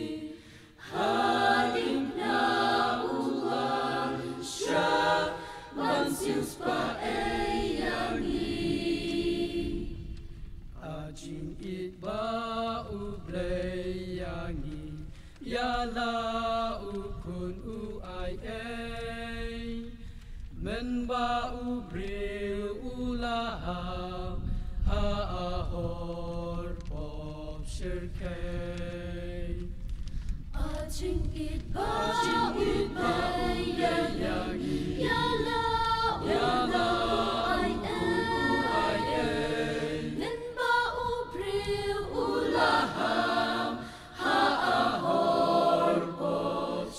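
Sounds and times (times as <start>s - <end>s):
choir singing a hymn: 0.0s - 10.2s, 10.8s - 20.0s, 25.2s - 29.7s, 30.6s - 46.9s.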